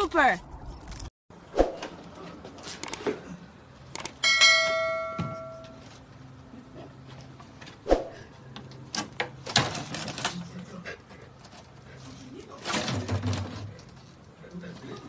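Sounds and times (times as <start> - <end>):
short clicks: 3.9 - 4.2
bell ding: 4.2 - 5.9.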